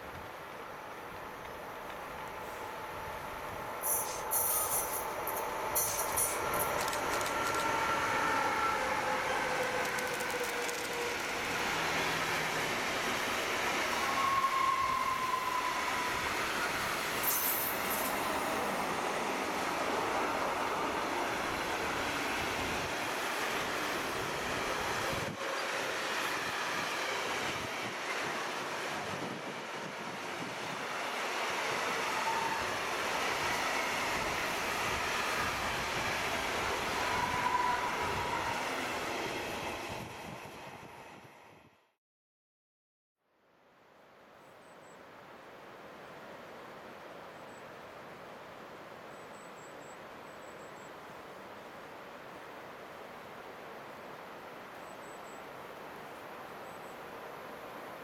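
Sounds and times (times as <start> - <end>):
train wheels rumbling on rails: 3.6 - 41.0.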